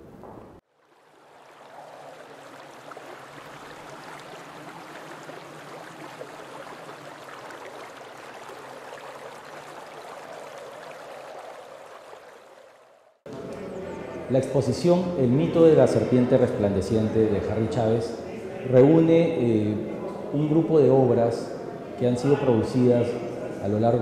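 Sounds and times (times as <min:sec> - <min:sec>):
running water: 0:00.6 - 0:13.2.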